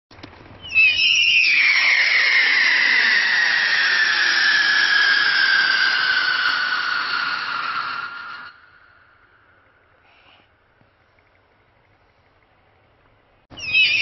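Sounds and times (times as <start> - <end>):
firework shrill whistle: 0.6 - 8.8, 13.5 - 14.0.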